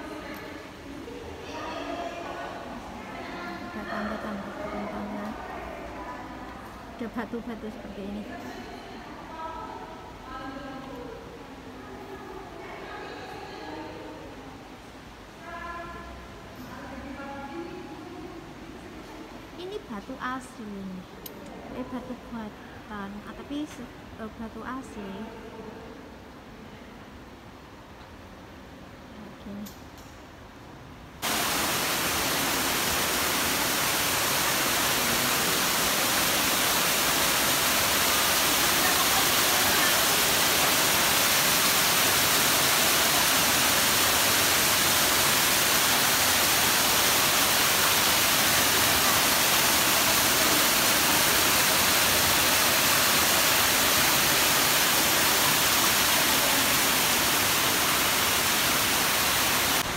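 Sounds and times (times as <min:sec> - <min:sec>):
waterfall pouring: 0:31.2 - 0:59.9.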